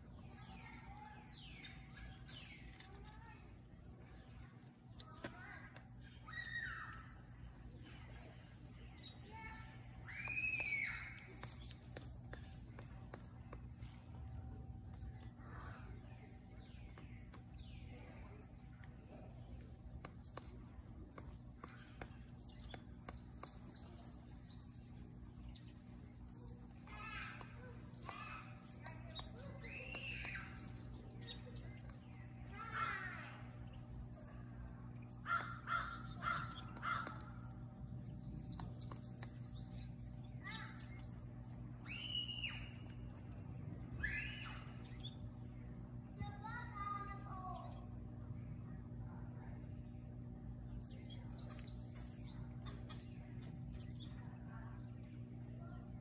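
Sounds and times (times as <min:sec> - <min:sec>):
birds chirping: 0:00.0 - 0:56.0
steady low hum: 0:00.0 - 0:56.0
woodpecker tapping on wood: 0:10.2 - 0:15.4, 0:18.7 - 0:24.0, 0:35.2 - 0:39.6.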